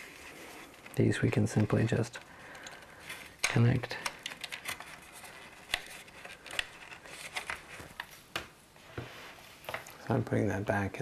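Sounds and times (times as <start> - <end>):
cable rustling: 0.0 - 10.0
cable connectors clicking: 2.2 - 8.1.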